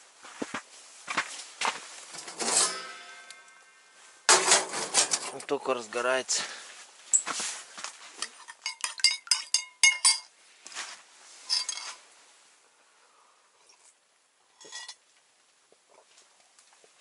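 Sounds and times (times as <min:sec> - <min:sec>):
teaspoon clinking in metal mug: 0:08.5 - 0:10.3.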